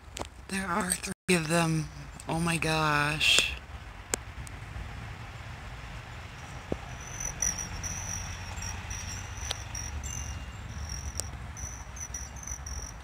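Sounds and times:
high-pitched insect-like buzzing trill: 6.4s - 13.0s
soft ticks: 6.7s - 13.0s.

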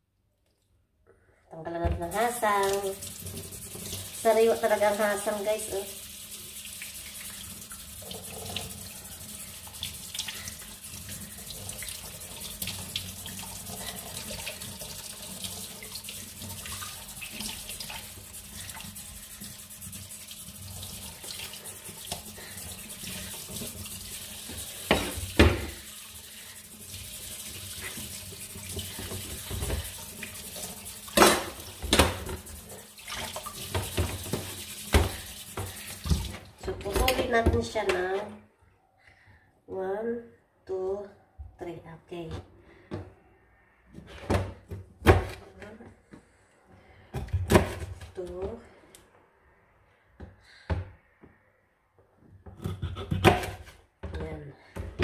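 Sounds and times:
tap water running into sink: 2.0s - 37.6s.

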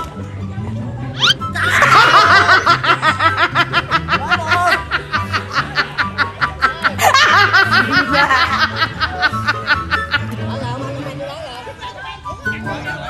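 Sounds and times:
background music with bass line: 0.0s - 13.0s
rapid high-pitched laughter: 1.2s - 10.4s.

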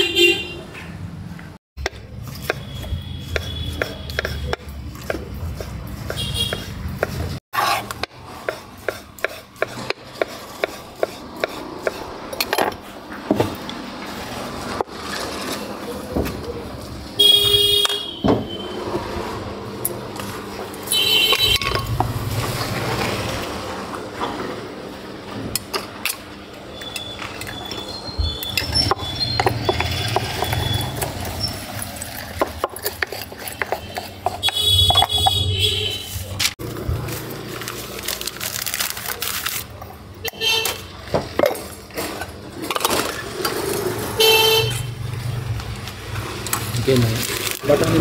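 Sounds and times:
knife chopping on wooden board: 1.8s - 12.0s.

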